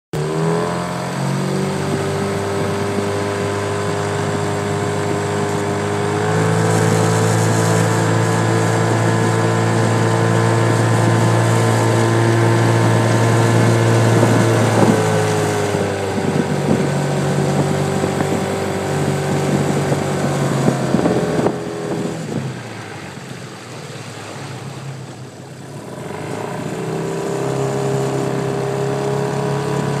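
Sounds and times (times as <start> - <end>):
outboard motor running: 0.2 - 30.0.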